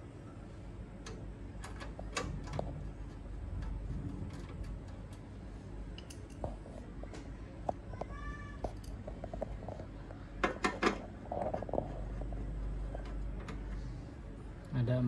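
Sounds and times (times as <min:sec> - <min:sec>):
metal clicks and knocks: 0:10.4 - 0:11.0.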